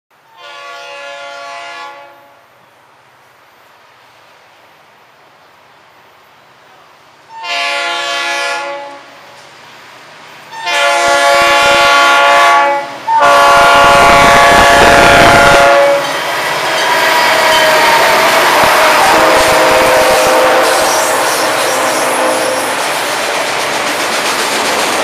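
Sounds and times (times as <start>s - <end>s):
freight train rolling past: 0.2s - 25.0s
locomotive air horn blasts: 0.3s - 2.4s, 7.3s - 9.2s, 10.5s - 16.1s, 17.4s - 22.8s.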